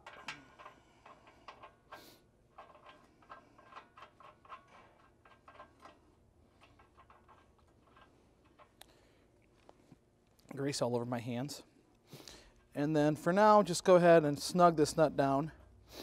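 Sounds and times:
metallic clicking of nut spinning: 0.0 - 8.9.

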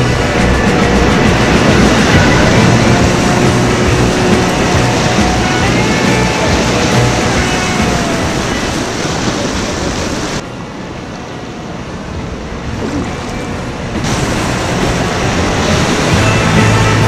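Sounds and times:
duller rush of calmer water: 0.0 - 17.0
rushing river rapids: 0.0 - 17.0.

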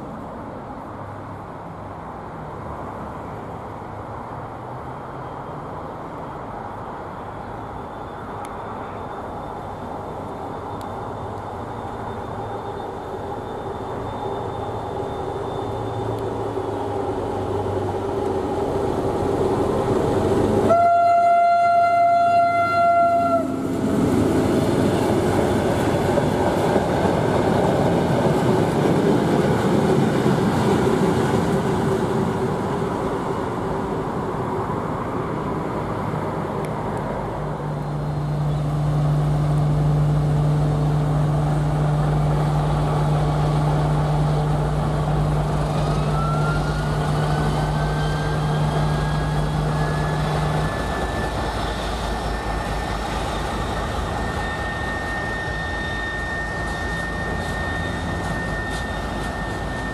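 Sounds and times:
diesel locomotive engine: 0.0 - 59.9
train horn: 20.6 - 23.8, 45.7 - 51.3.

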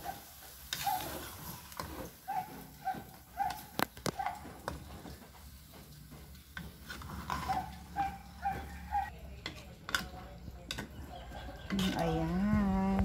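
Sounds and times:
spoon stirring in a pot: 0.1 - 13.0.

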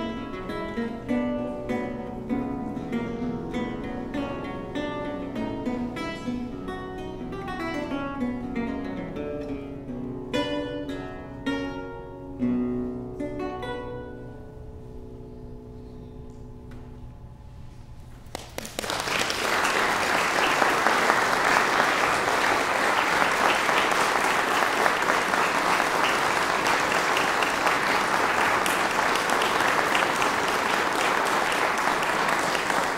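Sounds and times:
audience applause: 18.3 - 32.9.

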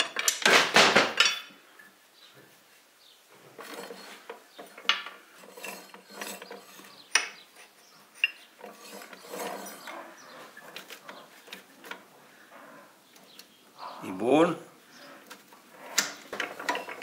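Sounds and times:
metal scraping: 3.4 - 13.0, 14.9 - 17.0.

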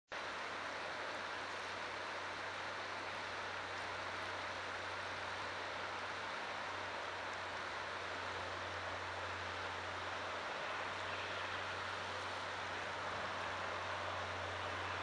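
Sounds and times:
low steady hum: 0.2 - 15.0
river rushing: 0.2 - 15.0.

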